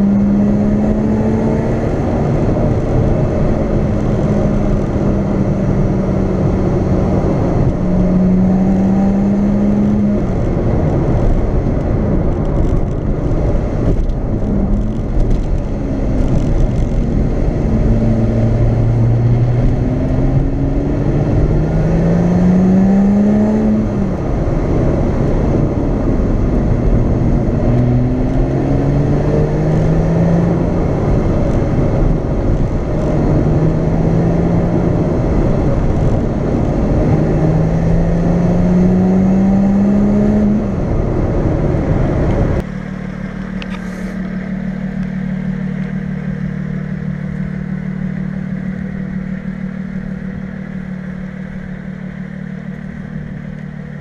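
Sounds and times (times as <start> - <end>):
car engine accelerating: 0.0 - 54.0
road and wind noise: 0.0 - 54.0
car engine idling: 40.7 - 54.0.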